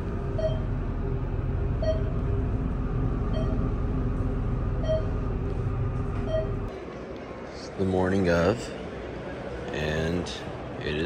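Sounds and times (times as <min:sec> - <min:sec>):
elevator low rumble: 0:00.0 - 0:07.7
short beeps: 0:00.4 - 0:00.7, 0:01.8 - 0:02.2, 0:03.3 - 0:03.7, 0:04.8 - 0:05.2, 0:06.2 - 0:06.6.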